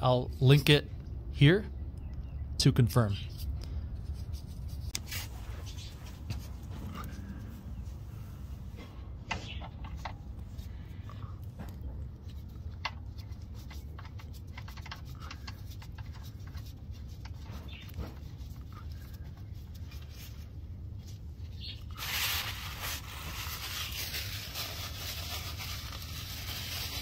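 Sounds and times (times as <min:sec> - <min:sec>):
steady low hum: 0:00.0 - 0:27.0
paper towel rustling: 0:21.9 - 0:27.0.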